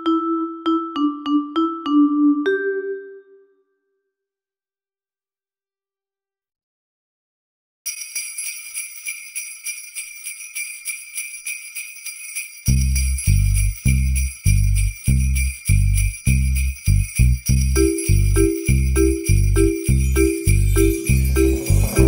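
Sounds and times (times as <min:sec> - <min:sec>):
sleigh bells shaken: 0:07.9 - 0:22.0
deep bass line: 0:12.7 - 0:22.0.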